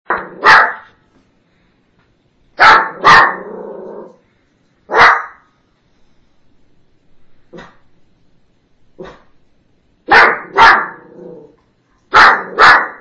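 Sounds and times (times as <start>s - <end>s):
small dog barking: 0.1s - 0.9s, 2.6s - 3.6s, 4.9s - 5.5s, 10.1s - 11.2s, 12.1s - 13.0s.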